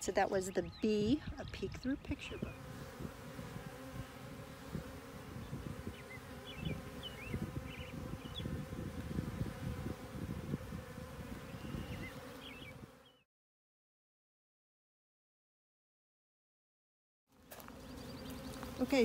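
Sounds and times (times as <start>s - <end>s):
bees buzzing: 0.0s - 13.2s, 17.3s - 19.0s.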